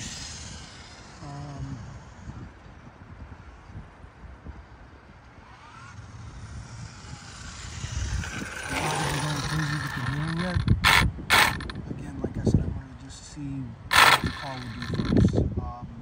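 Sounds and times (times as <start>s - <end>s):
pitched motor whine: 0.0s - 3.8s, 4.6s - 12.0s, 13.9s - 15.5s
rc car motor and tyres on asphalt: 0.0s - 16.0s
short loud bursts: 8.7s - 11.8s, 13.9s - 15.3s.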